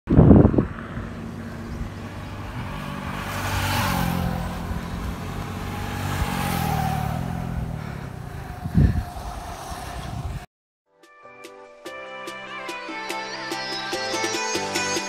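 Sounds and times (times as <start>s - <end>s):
rushing noise: 0.1s - 10.5s
vehicle engine running: 0.1s - 10.5s.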